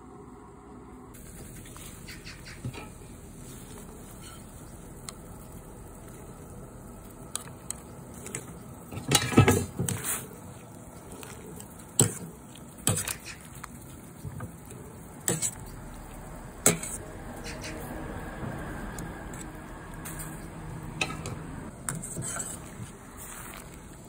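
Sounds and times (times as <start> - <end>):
water boiling in a pot: 0.0 - 24.0
utensils clacking against pot: 8.2 - 10.2, 16.6 - 17.9, 19.3 - 22.8.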